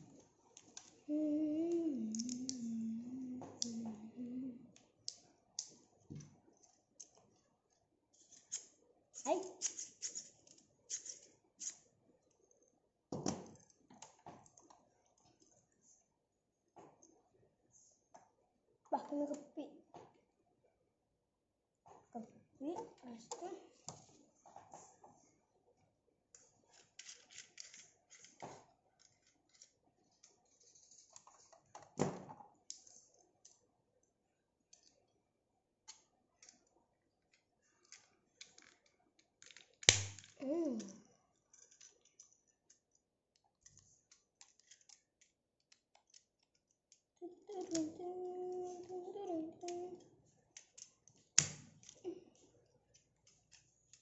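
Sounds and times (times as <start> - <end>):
plastic clicks: 2.1 - 2.7, 37.3 - 48.9
plastic parts clicking and rustling: 26.4 - 33.7, 35.8 - 49.0, 49.6 - 54.0.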